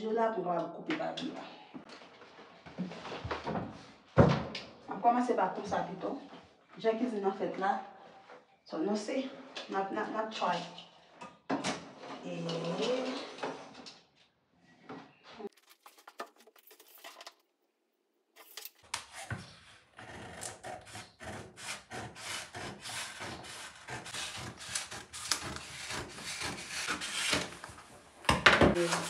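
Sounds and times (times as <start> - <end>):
contact paper crackling: 15.5 - 17.4.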